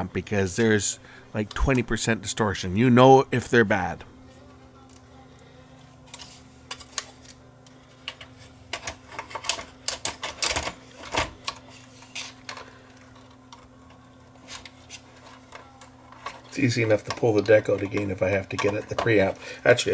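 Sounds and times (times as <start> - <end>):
faint steady hum: 0.0 - 19.9
tape deck mechanism clicks: 8.0 - 12.7.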